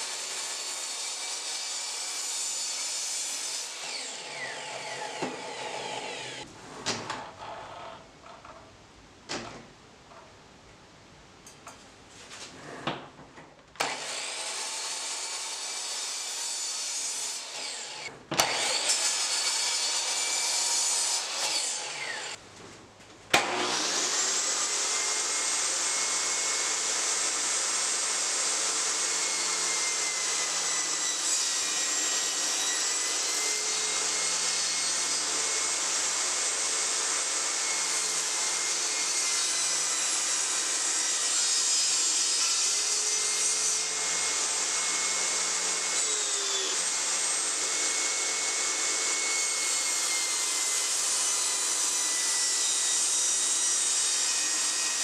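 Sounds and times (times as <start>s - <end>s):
miter saw cutting wood: 0.0s - 6.5s, 13.8s - 22.4s, 23.4s - 55.0s
table saw ripping board: 13.8s - 22.4s, 23.3s - 26.6s.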